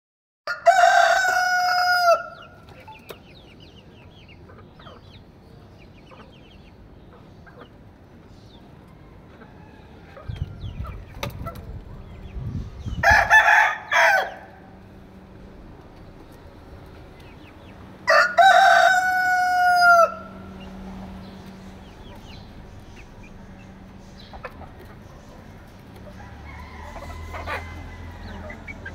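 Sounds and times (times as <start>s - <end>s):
rooster crowing: 0.5s - 2.5s, 13.0s - 14.8s, 18.0s - 20.6s, 26.0s - 28.9s
low rumble: 10.3s - 13.5s, 14.5s - 18.1s
hens clucking softly: 21.4s - 28.9s.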